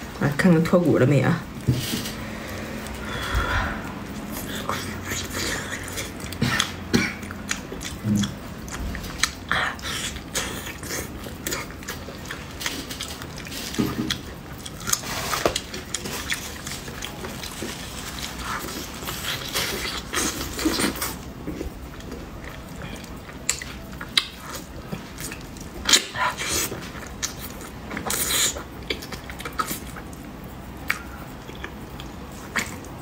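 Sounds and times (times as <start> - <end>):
person chewing and sucking: 2.4 - 33.0.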